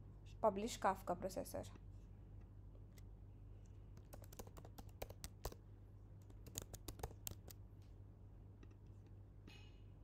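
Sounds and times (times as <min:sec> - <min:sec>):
keyboard typing: 0:04.0 - 0:05.6, 0:06.2 - 0:07.6.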